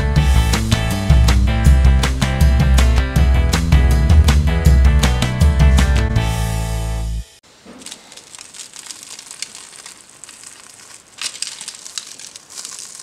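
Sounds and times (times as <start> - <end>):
fried crust crackling: 7.5 - 13.0.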